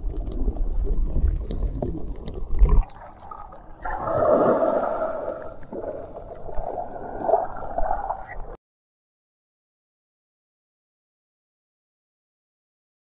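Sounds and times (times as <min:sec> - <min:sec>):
muffled underwater rumbling: 0:00.0 - 0:08.6.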